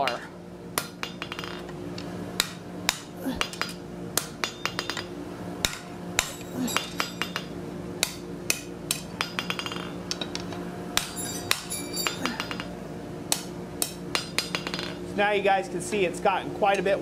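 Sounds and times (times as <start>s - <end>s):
low hum: 0.6s - 15.1s
metallic clanks of steel bar: 11.0s - 12.7s.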